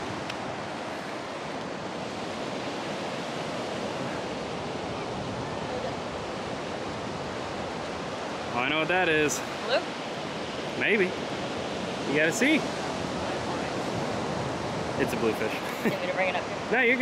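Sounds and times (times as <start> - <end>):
ocean surf washing on beach: 0.0 - 17.0.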